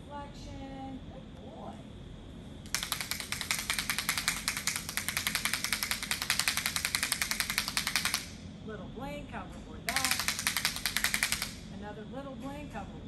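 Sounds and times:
rapid sharp clicking taps: 0:02.7 - 0:08.4, 0:09.9 - 0:11.7.

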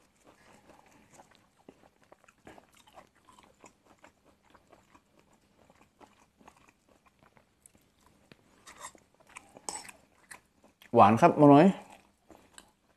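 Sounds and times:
faint chewing: 0:00.0 - 0:11.0, 0:11.7 - 0:12.9.

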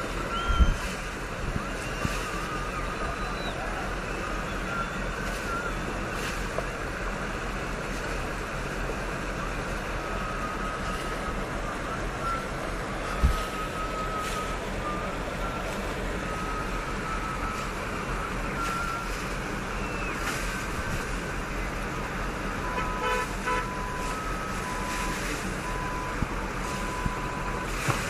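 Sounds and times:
traffic rushing: 0:00.0 - 0:28.0
car horn blast: 0:22.6 - 0:24.1
short car horn beeps: 0:22.6 - 0:25.1.

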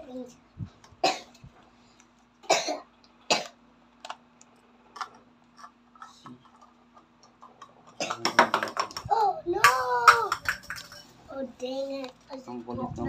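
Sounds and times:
person coughing: 0:02.5 - 0:03.5.

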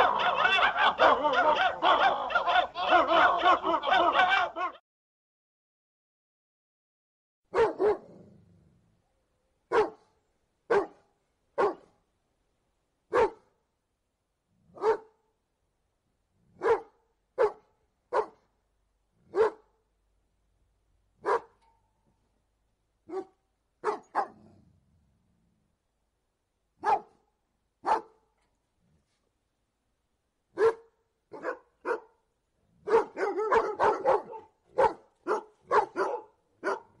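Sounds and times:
dog barking: 0:00.0 - 0:04.8, 0:07.5 - 0:08.3, 0:09.7 - 0:10.1, 0:10.7 - 0:11.9, 0:13.1 - 0:13.5, 0:14.7 - 0:15.2, 0:16.5 - 0:18.5, 0:19.3 - 0:19.7, 0:21.2 - 0:21.6, 0:23.1 - 0:24.6, 0:26.8 - 0:27.2, 0:27.8 - 0:28.2, 0:30.6 - 0:32.2, 0:32.8 - 0:37.0.

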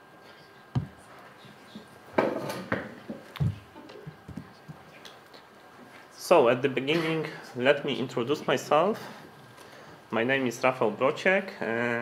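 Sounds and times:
dull thumps: 0:00.7 - 0:01.0, 0:02.2 - 0:04.8.

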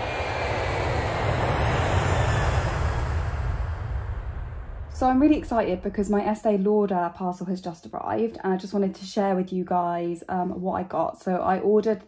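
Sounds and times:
rushing wind and water: 0:00.0 - 0:06.1
low engine rumble: 0:00.0 - 0:06.6.

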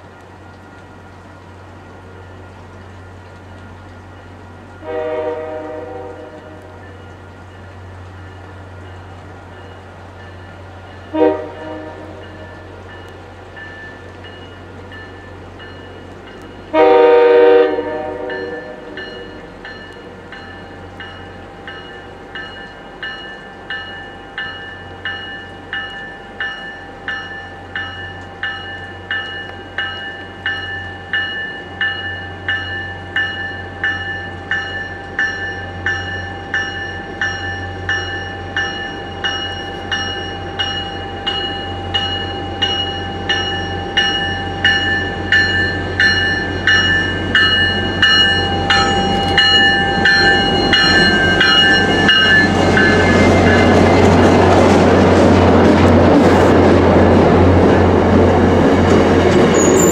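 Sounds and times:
locomotive bell ringing: 0:02.0 - 0:56.1, 0:57.6 - 0:59.9
train horn blast: 0:04.8 - 0:06.8, 0:11.1 - 0:12.7, 0:16.7 - 0:19.5.

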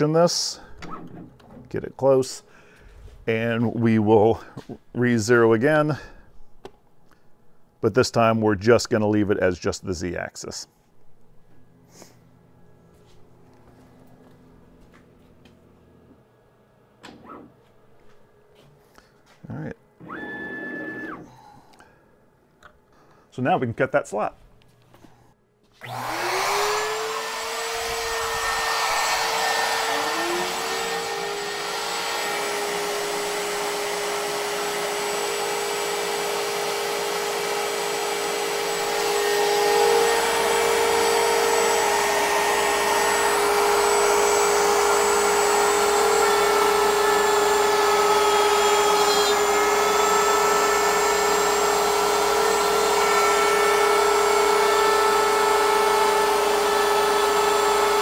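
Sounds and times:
router spinning: 0:25.8 - 0:58.0.

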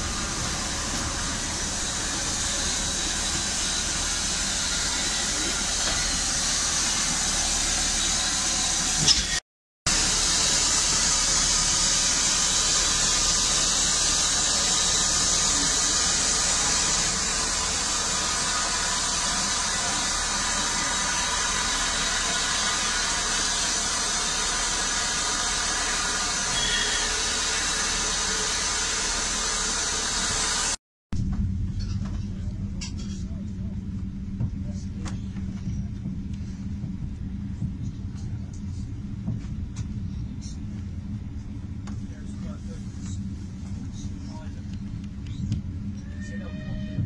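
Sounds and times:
steam hissing from locomotive: 0:00.0 - 0:30.8.

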